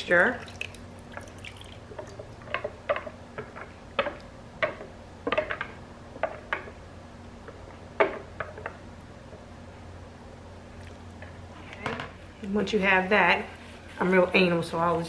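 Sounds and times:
sauce dripping and splatting: 0.4 - 2.5.

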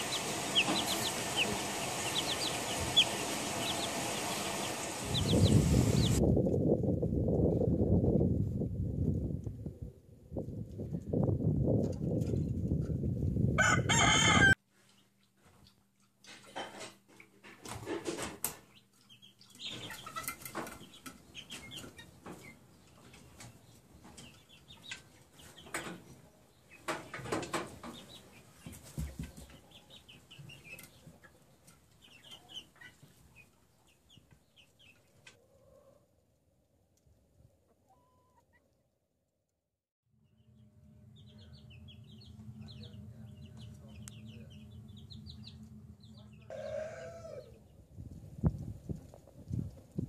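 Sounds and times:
young chickens clucking and peeping: 0.0 - 6.3, 17.7 - 36.0, 37.7 - 38.8, 41.2 - 49.8
rooster crowing: 13.6 - 14.6, 46.5 - 47.6
loud low rumble: 40.2 - 46.5.

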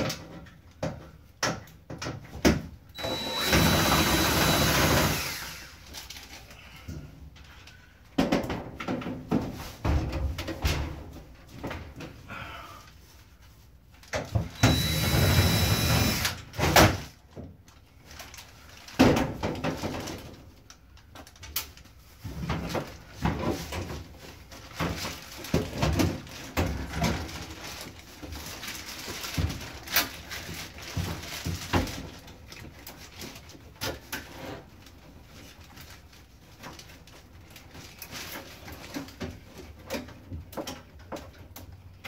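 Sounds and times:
plastic and cables rattling: 17.0 - 42.0.

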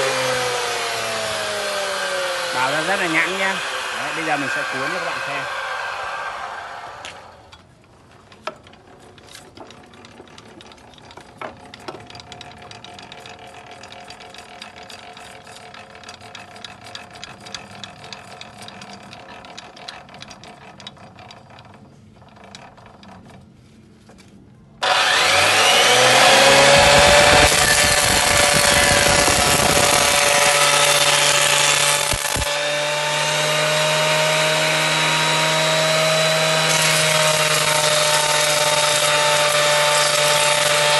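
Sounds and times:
planer cutting a board: 0.0 - 7.4, 24.8 - 40.9
thickness planer motor whine: 0.0 - 7.5, 24.8 - 40.9.

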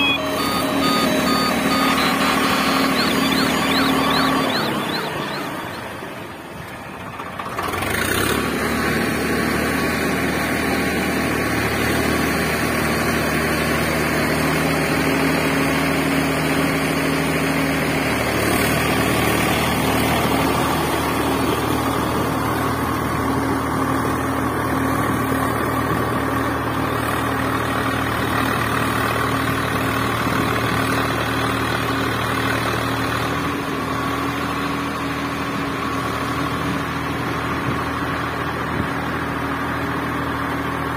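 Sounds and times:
engine idling: 0.0 - 15.5.

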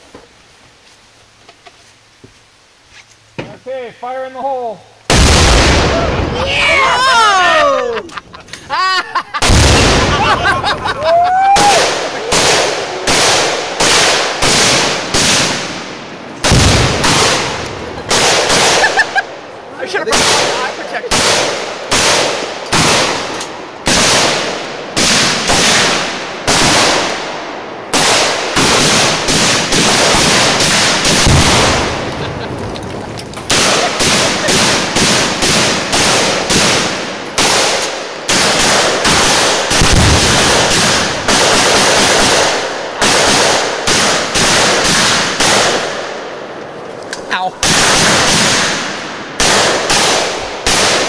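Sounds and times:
deep boom: 9.4 - 10.7, 15.8 - 17.9
rifles firing: 11.6 - 19.3, 20.0 - 32.4, 33.4 - 46.3, 47.6 - 51.0.

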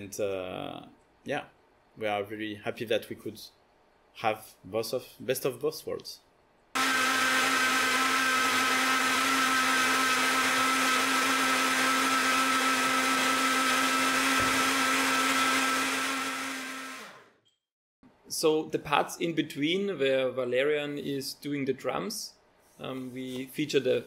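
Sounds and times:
bottle blender motor running: 6.8 - 17.4.

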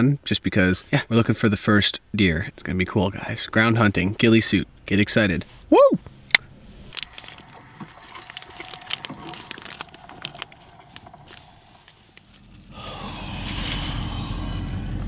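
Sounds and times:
paper wrapper crinkling: 6.8 - 14.1.

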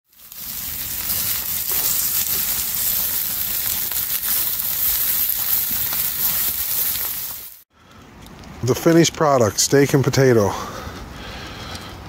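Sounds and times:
potatoes sizzling in a frying pan: 0.1 - 7.6.

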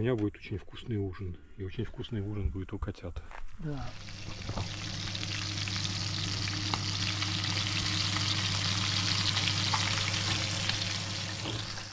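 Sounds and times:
low steady hum: 3.7 - 11.9
fish frying in hot oil: 4.0 - 11.9.

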